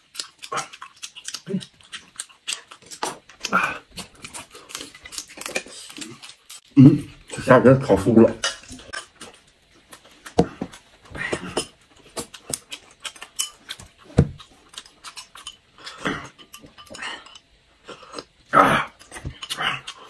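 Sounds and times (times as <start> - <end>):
chewing and lip smacking: 0.0 - 6.7, 11.6 - 18.4
chopsticks and dishes clicking: 11.4 - 17.5.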